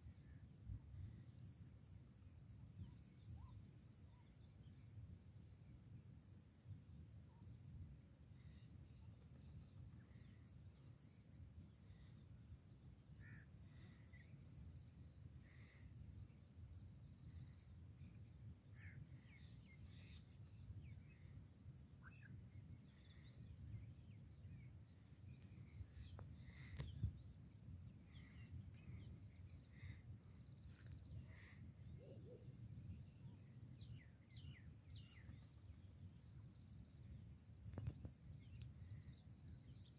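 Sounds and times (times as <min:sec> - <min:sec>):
faint bird chirps: 0:00.0 - 0:05.2, 0:05.8 - 0:39.9
high insect drone: 0:00.0 - 0:39.9.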